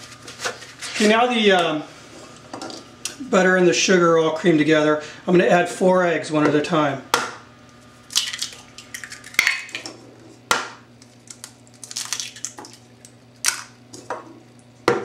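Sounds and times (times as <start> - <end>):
eggs dropping into mixture: 11.2 - 14.2.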